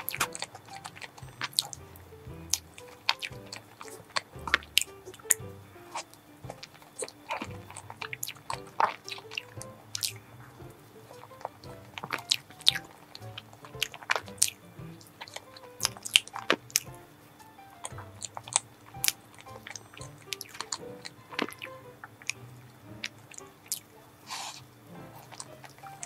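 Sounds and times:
soft background music: 0.0 - 26.0
wet chewing mouth sounds: 6.0 - 17.0.

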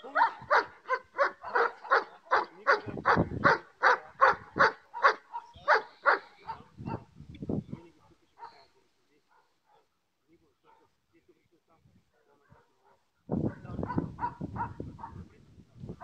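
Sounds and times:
dog barking: 0.0 - 7.1, 8.4 - 8.7, 9.3 - 10.0, 10.7 - 10.9, 12.4 - 13.0, 13.8 - 15.2.

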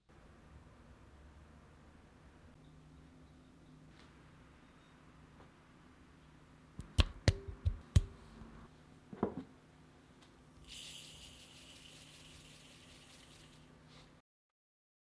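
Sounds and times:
sugar pouring: 10.6 - 13.7.

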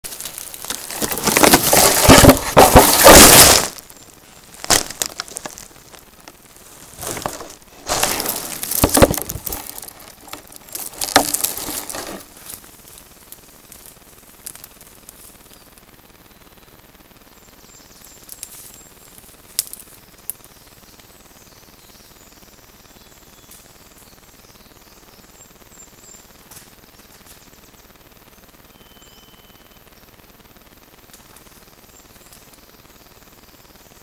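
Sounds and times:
sticks crunching: 0.0 - 13.1.

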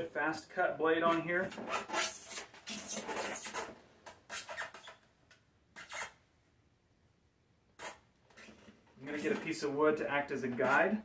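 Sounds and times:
tool rubbing and scraping on foam box: 1.0 - 5.0, 5.7 - 6.2, 7.8 - 9.6.

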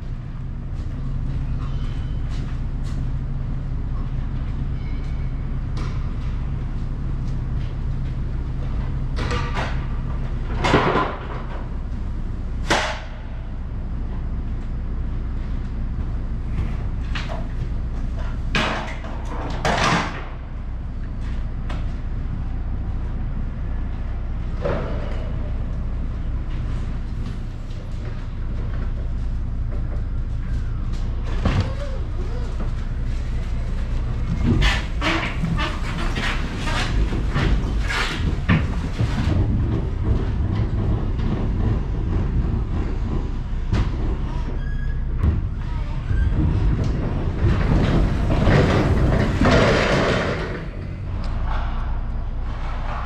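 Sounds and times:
steady low hum: 0.0 - 53.0
knocks and clatters: 4.3 - 12.0, 16.0 - 21.9, 32.6 - 53.0
forklift clanking over steel plate: 46.0 - 51.8.

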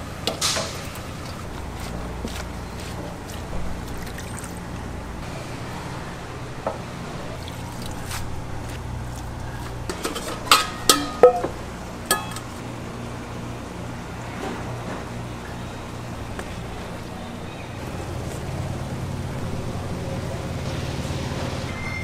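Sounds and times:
dishes clinking: 9.9 - 12.5.

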